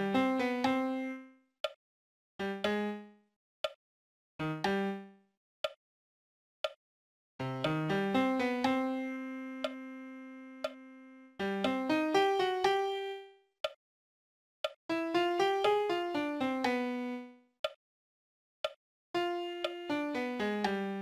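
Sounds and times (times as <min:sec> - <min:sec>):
piano playing: 0:00.0 - 0:01.3, 0:07.4 - 0:13.3, 0:14.9 - 0:17.4, 0:19.2 - 0:21.0
metronome clicks: 0:07.6 - 0:08.9, 0:09.6 - 0:09.9, 0:10.6 - 0:10.8, 0:11.4 - 0:13.8, 0:14.6 - 0:17.0, 0:18.6 - 0:21.0.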